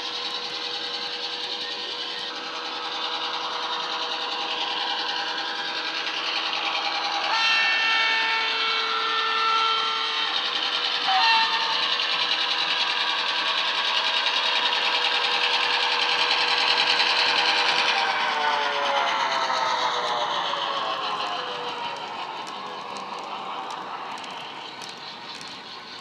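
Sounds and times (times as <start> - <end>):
model diesel engine running: 0.0 - 7.1, 10.4 - 26.0
train horn blasts: 7.3 - 10.2, 11.0 - 11.9.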